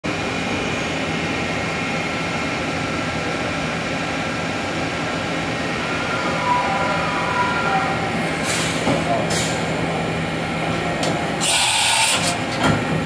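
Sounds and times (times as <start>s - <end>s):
faint whining tones: 5.1s - 9.3s.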